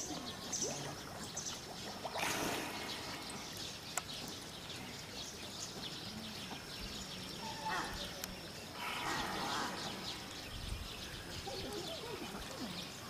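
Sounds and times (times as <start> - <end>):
water bubbling and lapping: 0.0 - 6.8, 8.2 - 13.0
water splash: 1.9 - 3.4.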